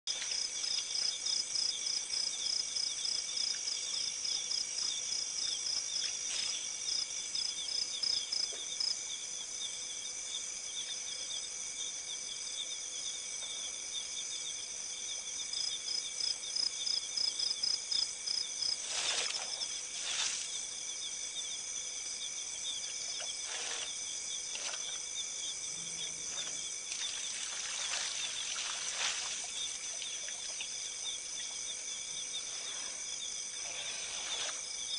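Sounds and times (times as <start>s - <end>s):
insects chirring in trills: 0.1s - 34.9s.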